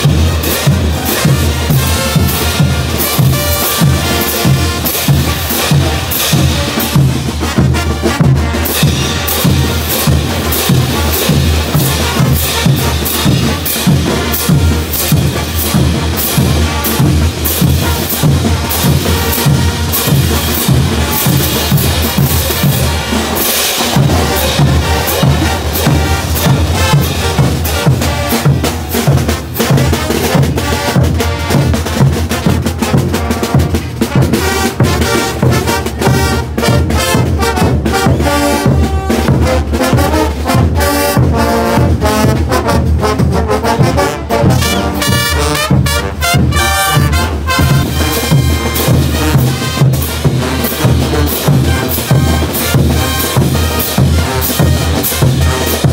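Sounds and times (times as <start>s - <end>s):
bass drums: 0.0s - 55.9s
brass band playing: 0.0s - 55.9s
snare drums: 0.0s - 55.9s.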